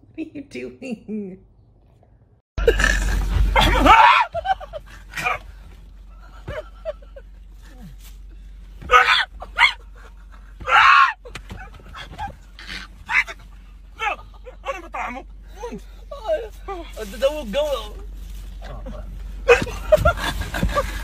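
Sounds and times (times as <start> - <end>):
low steady hum: 0.0 - 21.0
men shouting startled: 3.4 - 5.6, 8.8 - 10.0, 10.6 - 11.2, 12.0 - 15.4.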